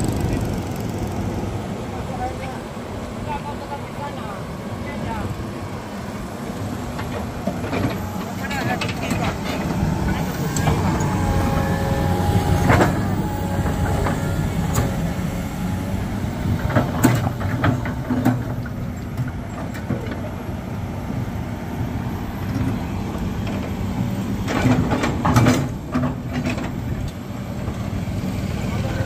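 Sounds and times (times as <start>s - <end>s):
heavy vehicle traffic rumbling: 0.0s - 29.0s
sharp knocks and clatter: 24.5s - 26.7s.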